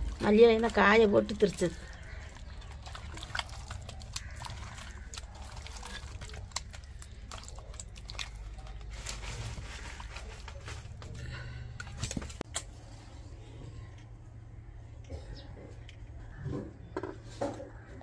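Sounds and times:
hand squelching wet paste: 0.0 - 12.4.

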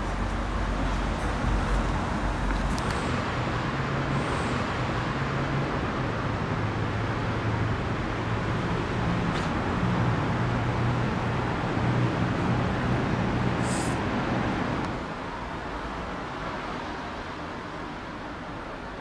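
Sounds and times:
street traffic noise: 0.0 - 19.0.

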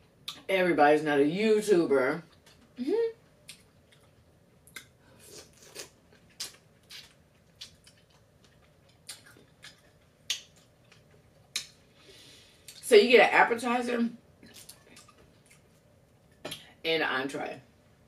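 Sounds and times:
wet chewing and mouth sounds: 2.3 - 12.0, 14.4 - 16.7.

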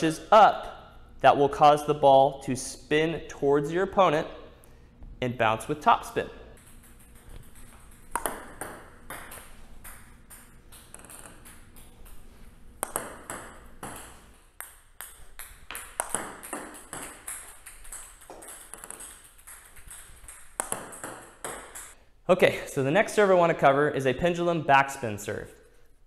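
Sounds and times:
table tennis ball bouncing: 5.6 - 22.0
paddle hitting table tennis ball: 6.6 - 22.0.

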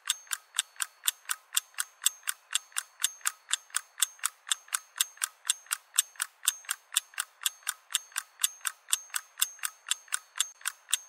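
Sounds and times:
rapid mechanical ticking: 0.0 - 11.0.

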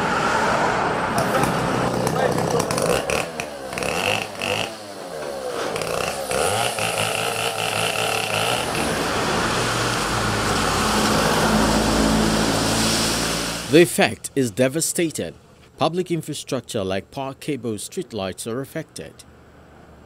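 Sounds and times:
low engine hum: 0.0 - 14.3
street noise: 0.0 - 16.5
chainsaw cutting tree trunk: 1.2 - 11.4.

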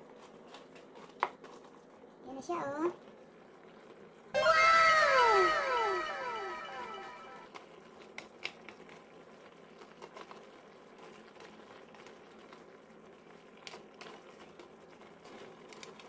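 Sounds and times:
food simmering in a pan: 0.0 - 4.3, 8.1 - 16.0.

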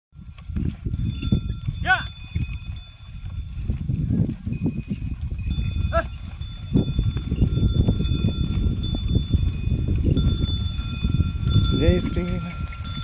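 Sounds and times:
wind rumble on microphone: 0.2 - 13.0
bullock bells ringing: 0.4 - 13.0.

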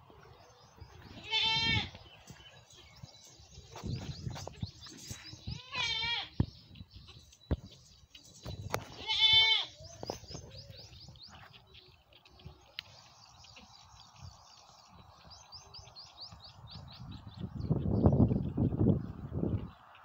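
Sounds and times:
small birds chirping: 0.0 - 20.0
goat bleating: 1.1 - 2.0, 5.6 - 6.4, 8.9 - 9.8.

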